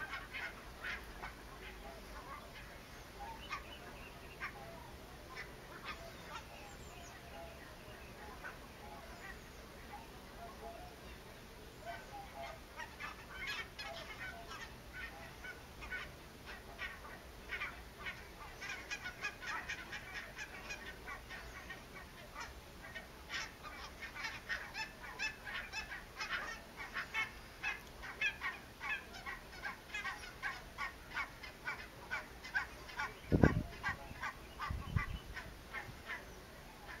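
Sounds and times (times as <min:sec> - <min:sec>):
geese calling: 0:00.0 - 0:37.0.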